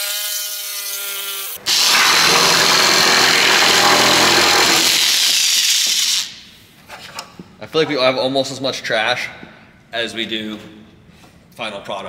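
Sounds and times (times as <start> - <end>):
power tool sanding: 1.6 - 5.3
power tool whine: 1.6 - 5.4.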